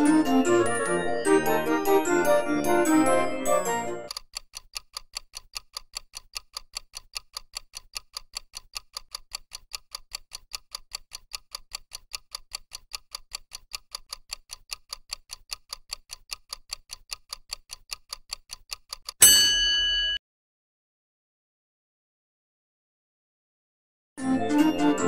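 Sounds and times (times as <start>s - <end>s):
rapid clock ticks: 0.0s - 19.2s.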